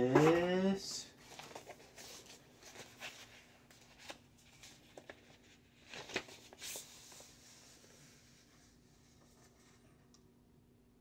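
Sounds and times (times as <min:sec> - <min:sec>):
paper and card rustling: 0:00.1 - 0:00.5, 0:01.2 - 0:09.8
card crackle: 0:01.2 - 0:07.4.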